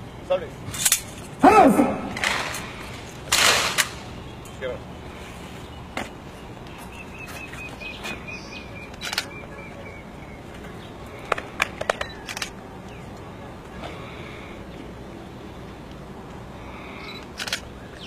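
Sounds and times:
bird chirping: 4.0 - 13.6, 16.9 - 18.0
camera shutters clicking: 8.9 - 9.4, 17.1 - 17.7.

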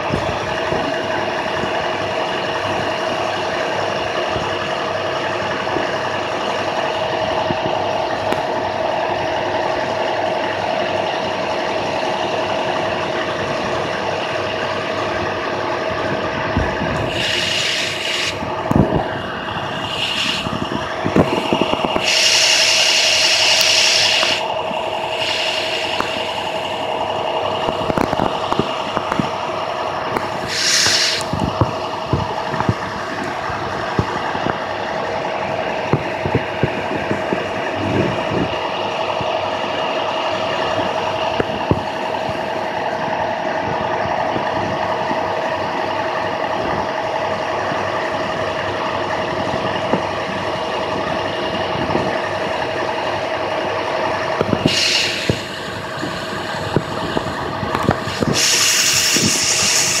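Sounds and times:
diesel bus engine idling: 0.0 - 60.0
air hiss: 17.0 - 18.4, 19.7 - 20.6, 21.3 - 26.6, 30.4 - 31.4, 54.6 - 57.1, 57.9 - 60.0.

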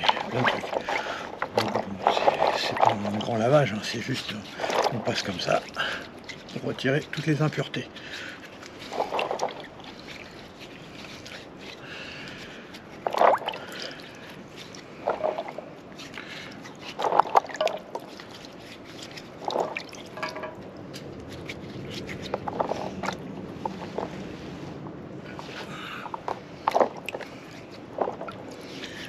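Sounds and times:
water splashing in a basin: 0.0 - 11.9, 12.5 - 20.6.

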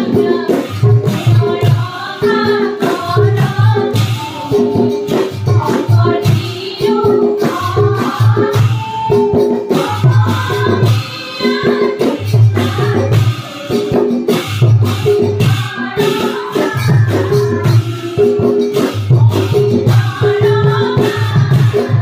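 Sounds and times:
women singing a chant in unison: 0.0 - 14.3, 15.4 - 22.0.

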